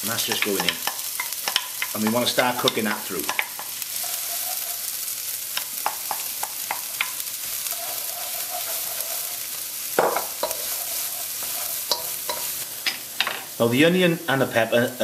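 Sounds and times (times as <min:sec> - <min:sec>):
vegetables sizzling in oil: 0:00.0 - 0:15.0
utensil scraping a pan: 0:00.2 - 0:05.1, 0:05.8 - 0:12.6.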